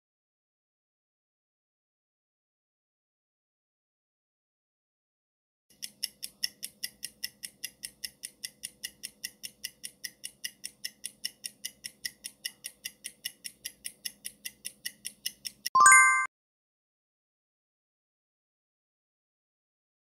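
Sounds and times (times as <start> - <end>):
fast timer ticking: 5.7 - 15.8.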